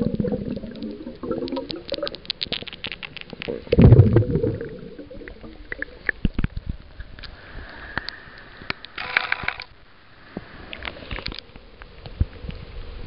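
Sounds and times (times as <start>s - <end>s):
water splashing: 0.0s - 6.7s
water sloshing and bubbling: 0.0s - 7.7s.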